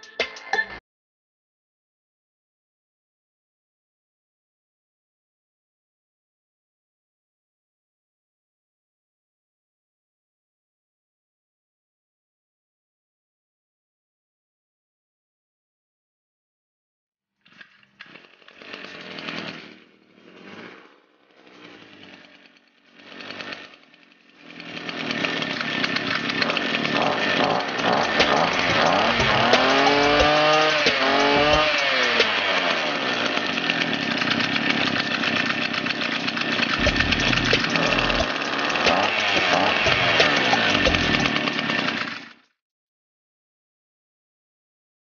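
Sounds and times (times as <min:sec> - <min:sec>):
recoil starter pulls: 0:17.4 - 0:42.5
two-stroke engine running and revving: 0:17.5 - 0:42.5.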